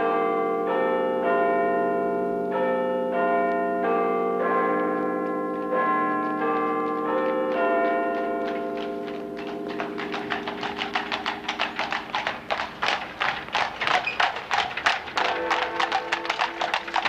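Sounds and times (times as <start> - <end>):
church bells ringing: 0.0 - 17.0
horse hooves on pavement: 4.5 - 17.0.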